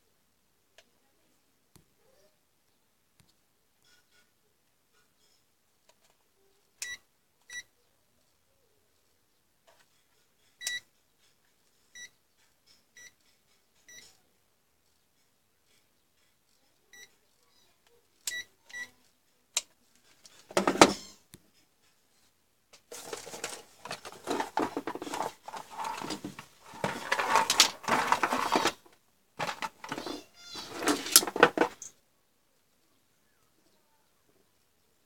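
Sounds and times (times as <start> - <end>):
rustling and handling noise: 19.8 - 21.2, 22.0 - 32.0.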